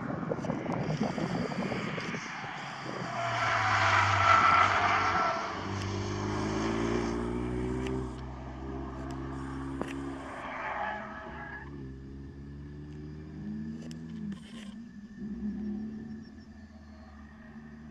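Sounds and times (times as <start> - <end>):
car engine revving: 0.0 - 17.9.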